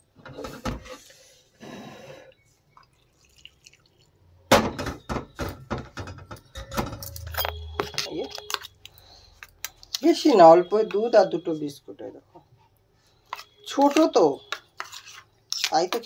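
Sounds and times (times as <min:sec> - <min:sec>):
steel bowl and utensils clinking: 0:06.0 - 0:08.7.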